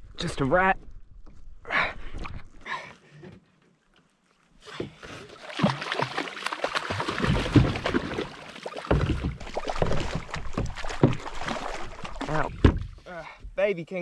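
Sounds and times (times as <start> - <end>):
water splashing: 4.6 - 13.0
knocks against kayak hull: 8.9 - 11.5, 12.5 - 13.0.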